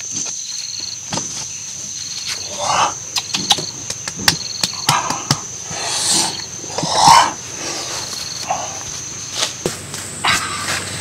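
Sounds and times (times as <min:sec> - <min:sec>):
insect drone: 0:00.0 - 0:11.0.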